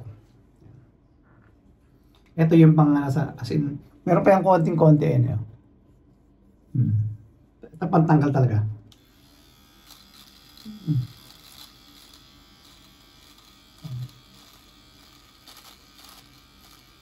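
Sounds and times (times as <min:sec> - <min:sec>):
electric shaver buzzing: 0:08.9 - 0:17.0.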